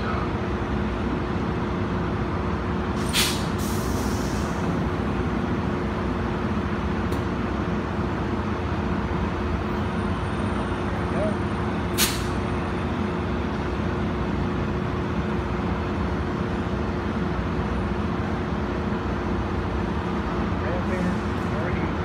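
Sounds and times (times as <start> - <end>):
train mechanical hum: 0.0 - 22.0
air brake hiss: 3.0 - 4.7, 11.9 - 12.4.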